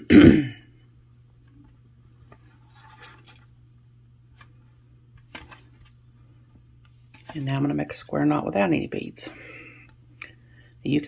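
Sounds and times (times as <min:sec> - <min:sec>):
low steady hum: 0:00.0 - 0:11.0
cord rustling: 0:01.4 - 0:03.7, 0:04.3 - 0:07.5.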